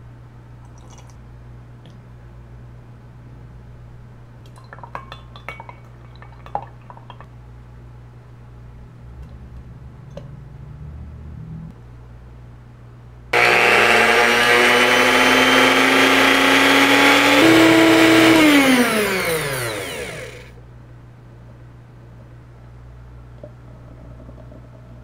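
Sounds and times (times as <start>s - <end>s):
electric whisk whining: 13.4s - 20.5s.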